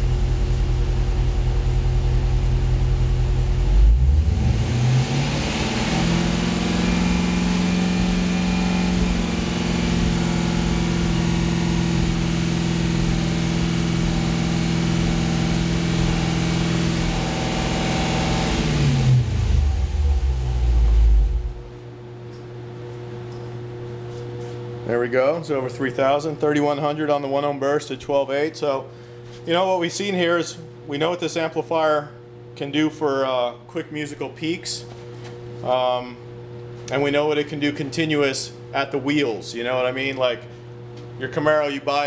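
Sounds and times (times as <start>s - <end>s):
car engine revving: 0.0s - 21.7s.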